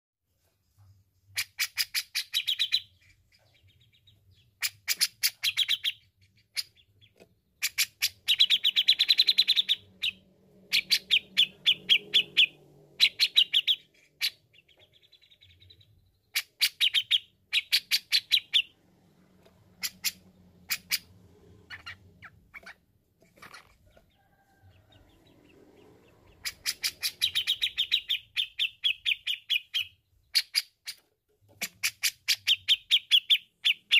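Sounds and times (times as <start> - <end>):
bird chattering calls: 19.8 - 21.1, 21.7 - 22.8, 25.2 - 31.0.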